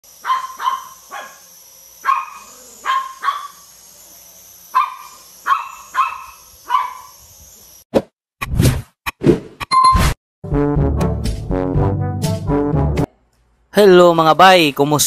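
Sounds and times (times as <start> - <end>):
small dog barking: 0.2 - 1.4, 2.0 - 3.6, 4.7 - 7.1.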